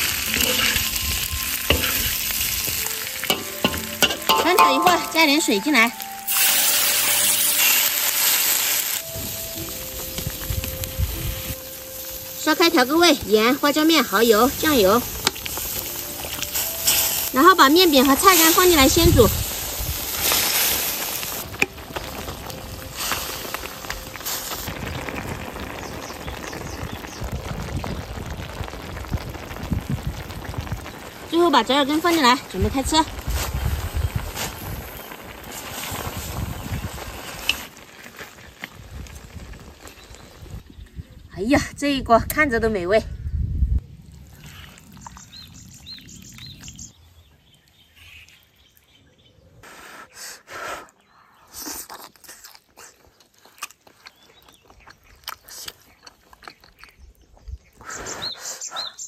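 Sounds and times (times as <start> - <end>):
broth bubbling in a wok: 0.0 - 41.3, 44.0 - 47.9
metal spatula knocking a wok: 3.3 - 5.3
small bird chirping: 44.6 - 49.4.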